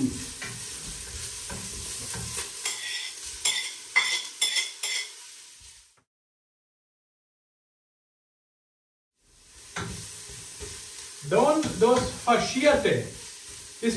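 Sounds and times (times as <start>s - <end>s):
vegetables sizzling in oil: 0.0s - 6.0s, 9.2s - 13.9s.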